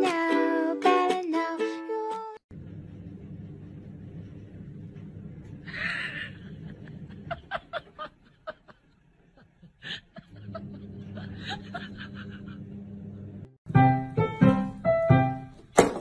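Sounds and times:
steady low hum: 0:02.5 - 0:13.5
person snickering: 0:05.6 - 0:12.8.

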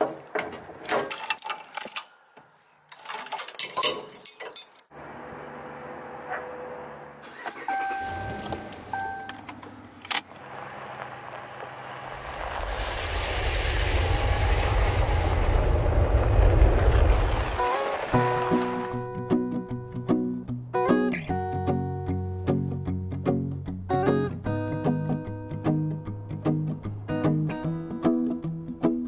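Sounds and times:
pickup engine starting and idling: 0:05.0 - 0:12.6
vehicle rushing past: 0:10.6 - 0:18.9.

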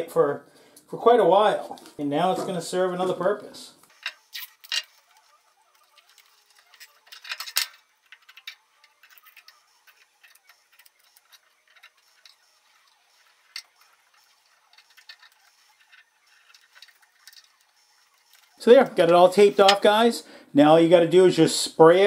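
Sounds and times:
paper and tape rustling: 0:03.9 - 0:20.0.

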